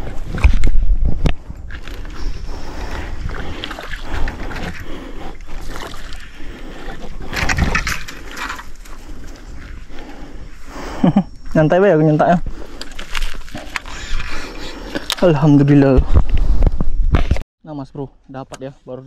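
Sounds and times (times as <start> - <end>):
wind buffeting microphone: 0.0 - 10.6
water noise: 0.0 - 16.6.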